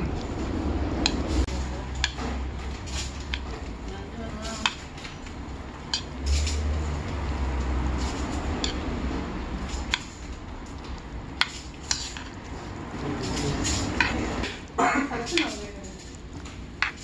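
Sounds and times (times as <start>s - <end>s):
chopsticks mixing noodles: 0.0s - 17.0s
chopsticks clicking against bowl: 1.0s - 2.2s, 3.0s - 3.5s, 4.3s - 7.0s, 8.5s - 8.9s, 9.6s - 12.4s, 13.3s - 17.0s.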